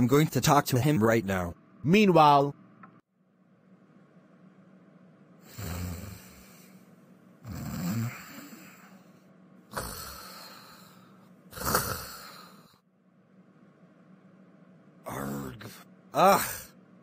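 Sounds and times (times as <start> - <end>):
cartoon snoring: 5.4 - 6.8, 7.4 - 9.1, 9.7 - 12.8.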